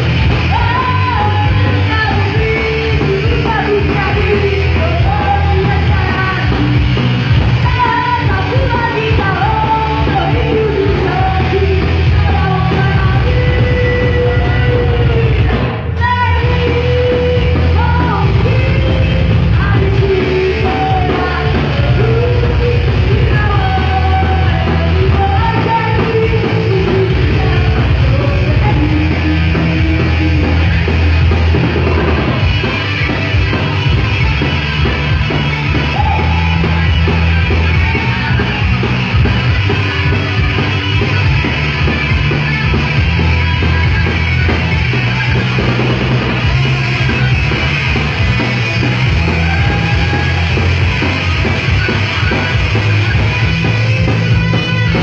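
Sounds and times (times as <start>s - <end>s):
heavy metal band playing: 0.0s - 55.0s
woman singing: 0.4s - 30.9s.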